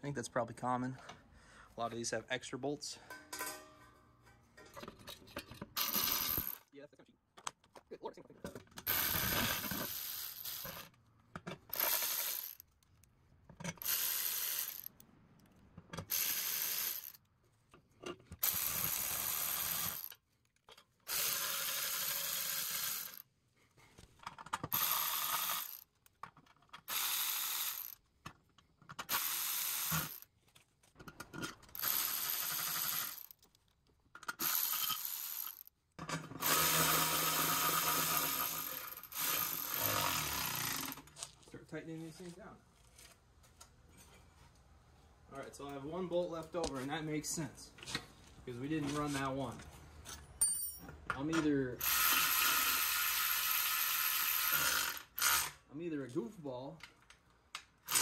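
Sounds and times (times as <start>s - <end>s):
ratchet wrench clicking: 13.8s - 15.0s, 16.0s - 17.2s, 24.7s - 25.9s, 34.3s - 35.7s, 51.8s - 55.6s.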